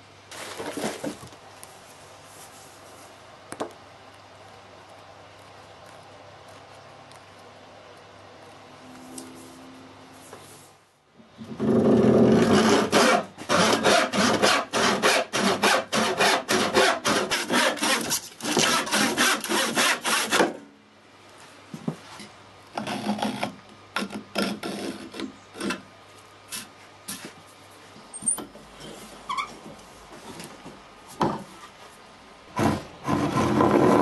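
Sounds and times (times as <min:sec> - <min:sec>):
hand saw cutting wood: 0:11.5 - 0:20.6, 0:22.8 - 0:25.8, 0:32.6 - 0:34.0.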